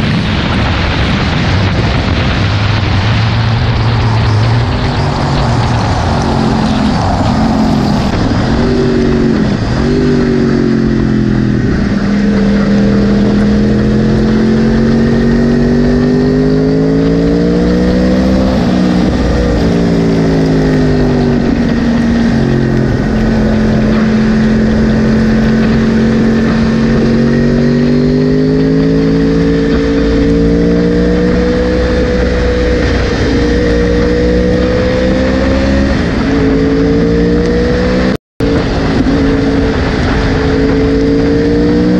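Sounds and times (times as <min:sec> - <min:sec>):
motorcycle engine revving: 0:00.0 - 0:41.9.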